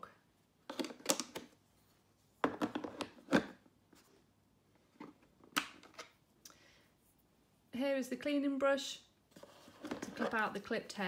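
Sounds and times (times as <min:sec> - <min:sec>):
clicks and knocks of plastic case: 0:02.4 - 0:03.6.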